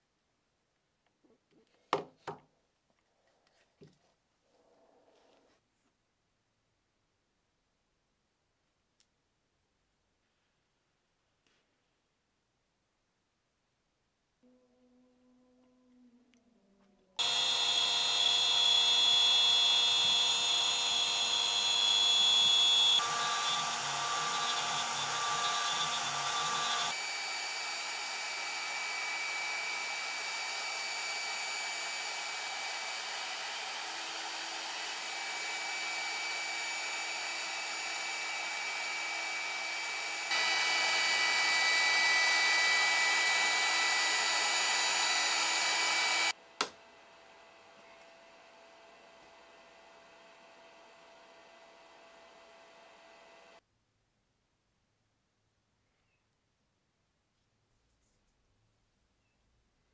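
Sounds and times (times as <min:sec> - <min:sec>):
router spindle high whine: 0:17.2 - 0:46.3.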